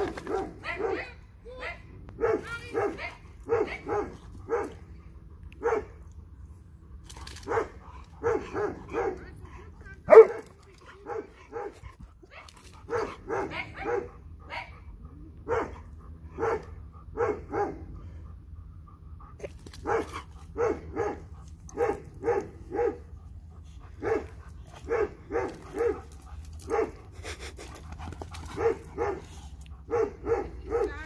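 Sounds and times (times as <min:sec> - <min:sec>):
dog barking: 0:00.2 - 0:04.8, 0:05.6 - 0:05.9, 0:07.5 - 0:09.3, 0:10.1 - 0:10.4, 0:12.9 - 0:14.7, 0:15.5 - 0:15.8, 0:16.4 - 0:17.8, 0:19.8 - 0:21.2, 0:21.8 - 0:23.0, 0:24.0 - 0:26.1, 0:26.7 - 0:27.0, 0:28.6 - 0:29.3, 0:29.9 - 0:31.0.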